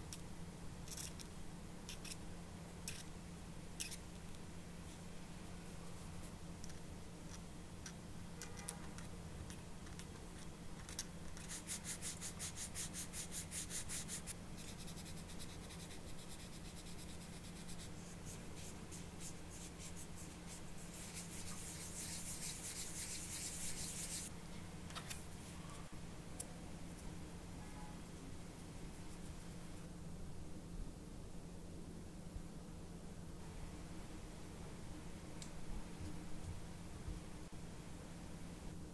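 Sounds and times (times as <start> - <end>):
faint steady hum: 0.0 - 38.9
sanding plastic by hand: 11.4 - 24.3.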